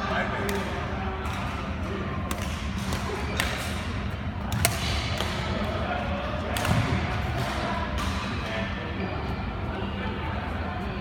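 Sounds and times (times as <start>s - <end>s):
murmur of sports hall: 0.0s - 11.0s
rackets striking shuttlecock: 0.4s - 5.9s, 6.5s - 8.4s.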